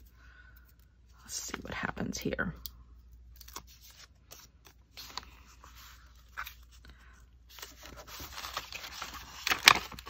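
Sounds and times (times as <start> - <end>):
paper rustling: 3.4 - 10.0.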